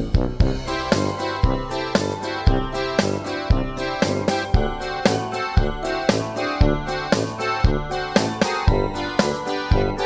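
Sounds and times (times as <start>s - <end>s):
music with steady beat: 0.0s - 10.0s
sustained keyboard notes: 0.8s - 10.0s.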